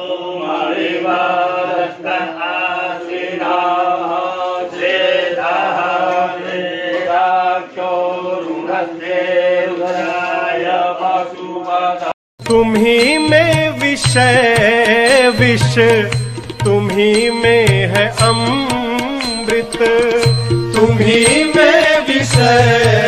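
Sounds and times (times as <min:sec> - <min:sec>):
voices chanting a mantra: 0:00.0 - 0:12.2, 0:21.0 - 0:23.0.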